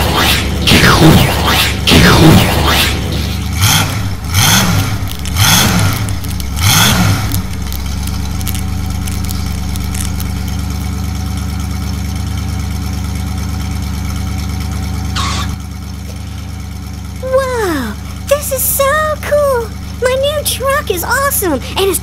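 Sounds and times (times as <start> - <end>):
truck engine revving and idling: 0.0 - 22.0.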